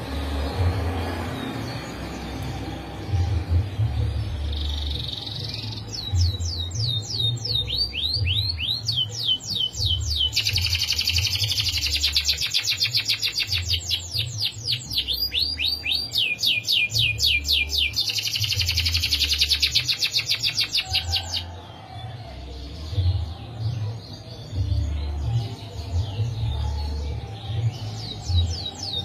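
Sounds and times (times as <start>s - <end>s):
canary singing: 0.0s - 29.0s.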